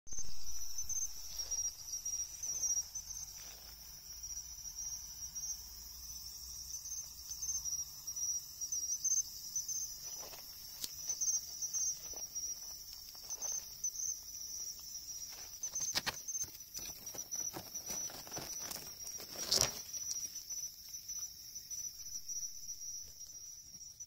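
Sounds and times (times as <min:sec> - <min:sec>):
crickets ringing and chirping: 0:00.1 - 0:24.0
faint rustles: 0:14.8 - 0:21.1.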